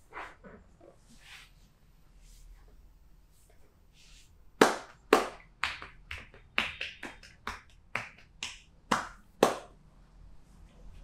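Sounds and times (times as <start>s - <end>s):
hands slapping a back: 4.6s - 9.8s.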